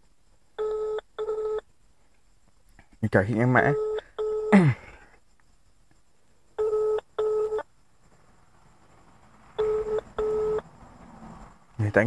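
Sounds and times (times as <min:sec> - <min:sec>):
phone ringback tone: 0:00.6 - 0:01.6, 0:03.7 - 0:04.6, 0:06.6 - 0:07.6, 0:09.6 - 0:10.6.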